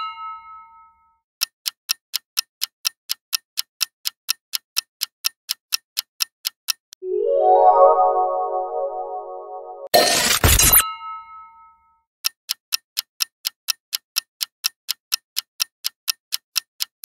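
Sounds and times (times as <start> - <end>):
clock ticking: 1.4 - 7.0, 12.2 - 17.0.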